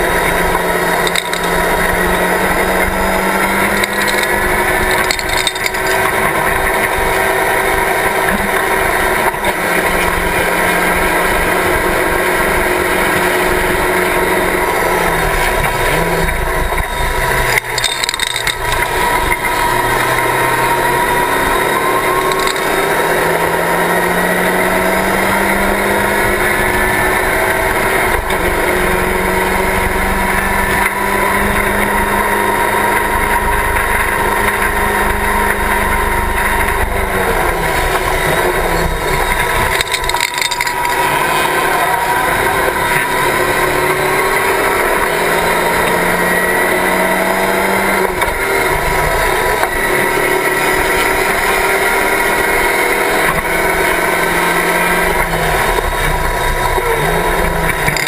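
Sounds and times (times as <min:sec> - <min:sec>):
race car engine revving high: 0:00.0 - 0:58.0.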